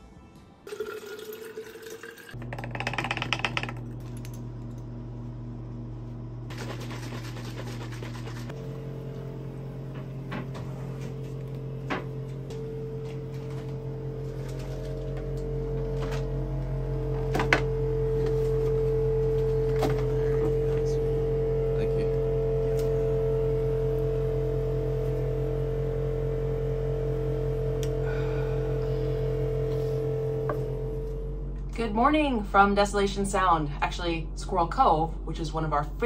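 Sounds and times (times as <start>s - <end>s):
liquid pouring into a glass: 0.7s - 2.4s
low hum: 2.3s - 36.0s.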